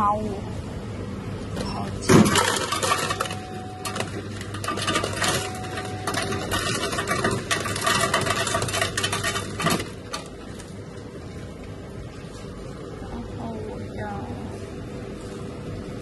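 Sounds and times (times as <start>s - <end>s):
ice cubes clattering into cup: 2.1s - 10.3s.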